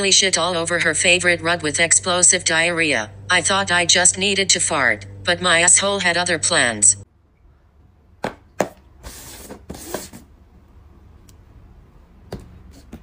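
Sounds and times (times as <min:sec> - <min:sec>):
paper cups scraping on table: 0:09.0 - 0:10.3.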